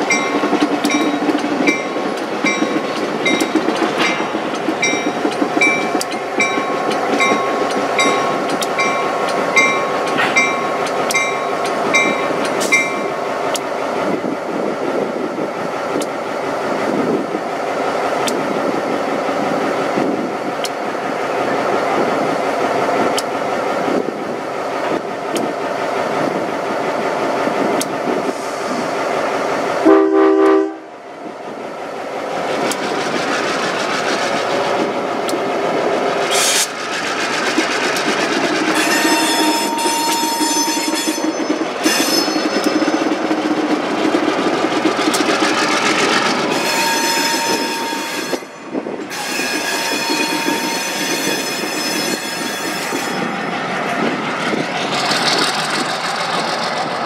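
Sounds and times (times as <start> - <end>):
freight cars rolling on track: 0.0 - 16.2, 31.8 - 57.0
diesel locomotive engine running: 0.0 - 57.0
train horn blast: 29.8 - 30.9, 38.8 - 41.2, 46.6 - 48.5, 49.4 - 51.5
wheel flanges squealing: 36.3 - 43.1, 46.5 - 53.3.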